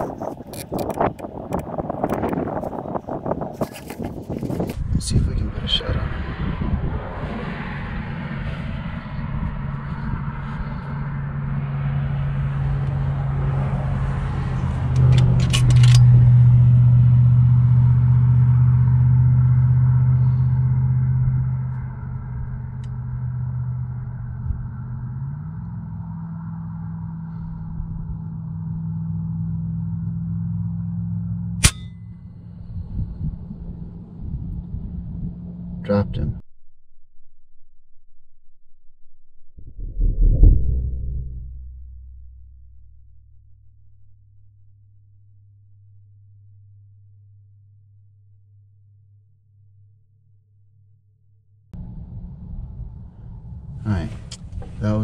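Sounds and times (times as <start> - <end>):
vehicle engine humming: 0.0 - 36.4, 39.2 - 45.2, 51.8 - 55.0
air rifle shot: 31.6 - 31.9
metallic ring: 31.6 - 32.5.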